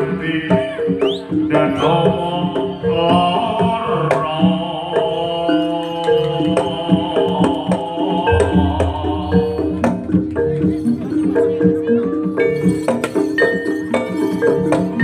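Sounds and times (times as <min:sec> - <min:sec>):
hand drums playing busy rhythm: 0:00.0 - 0:15.0
melody of held notes: 0:08.1 - 0:12.8.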